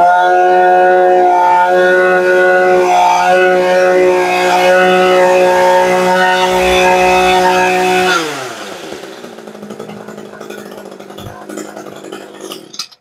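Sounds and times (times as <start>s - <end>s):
brush cutter engine running: 6.4s - 12.8s.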